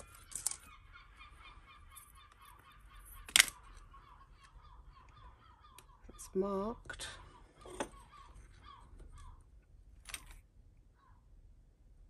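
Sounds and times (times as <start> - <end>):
jewellery clicking: 0.0 - 0.7, 3.0 - 3.8
jewellery pieces clacking together: 0.0 - 0.8, 1.8 - 4.6, 10.0 - 10.4
faint bird calls: 0.0 - 11.4.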